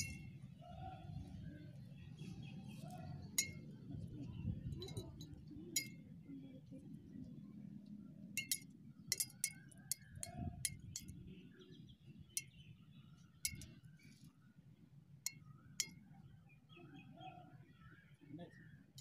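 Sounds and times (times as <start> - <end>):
seeds clinking on glass: 8.4 - 11.1, 13.5 - 13.7.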